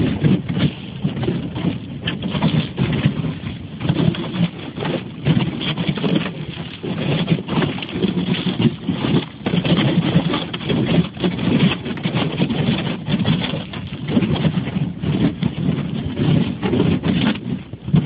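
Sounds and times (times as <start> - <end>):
boat hull scraping through ice: 0.0 - 18.0.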